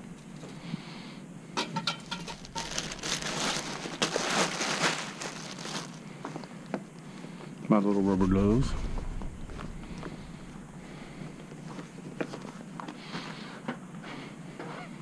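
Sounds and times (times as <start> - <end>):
rustling and crinkling: 1.9 - 7.6, 9.0 - 13.8.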